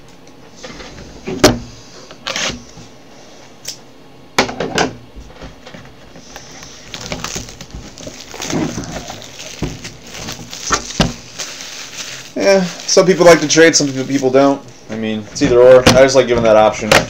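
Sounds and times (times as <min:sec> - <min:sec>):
cardboard boxes knocking on table: 0:09.5 - 0:11.2.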